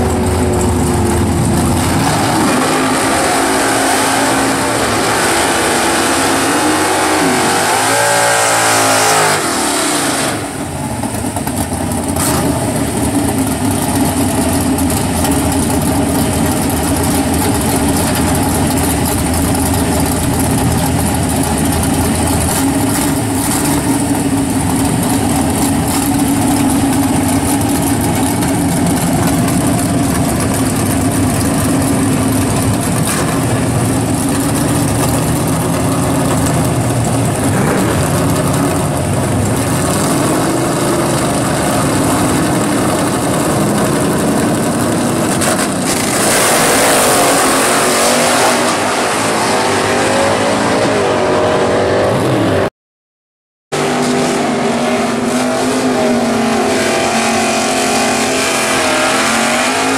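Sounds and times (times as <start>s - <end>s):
drag car engine idling loudly: 0.0s - 47.6s
drag car engine accelerating: 0.0s - 52.7s, 53.8s - 59.9s.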